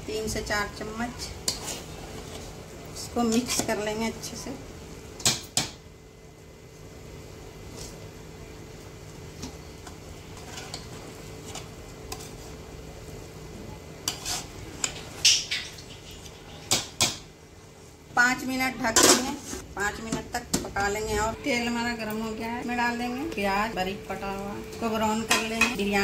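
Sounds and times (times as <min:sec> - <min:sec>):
spoon scraping in a pot: 0:01.2 - 0:02.6, 0:03.2 - 0:03.8, 0:09.9 - 0:12.6, 0:14.0 - 0:17.0.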